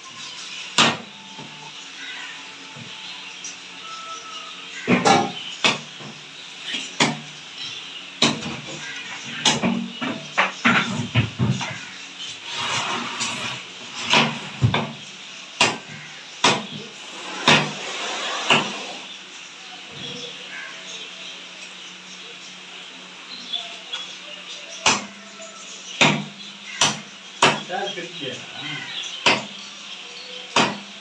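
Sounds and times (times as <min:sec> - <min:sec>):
knife chopping onto wooden block: 0:16.4 - 0:16.7, 0:26.0 - 0:27.7, 0:30.6 - 0:30.8.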